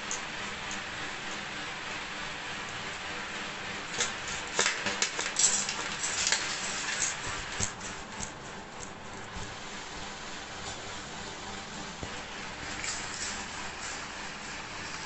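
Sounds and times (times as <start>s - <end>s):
steady hiss: 0.0s - 15.0s
plastic packaging crackling: 3.9s - 7.9s.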